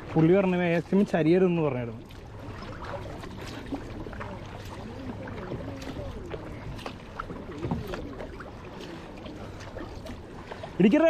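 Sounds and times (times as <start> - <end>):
paddle splashing in water: 0.0 - 11.0
faint voices: 2.8 - 9.9.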